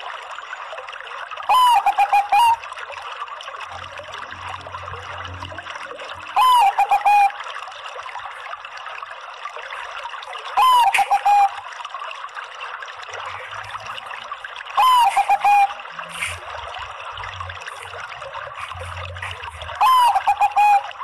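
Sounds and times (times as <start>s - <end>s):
dove cooing: 1.5s - 2.6s, 6.4s - 7.3s, 10.6s - 11.6s, 14.8s - 16.4s, 18.6s - 21.0s.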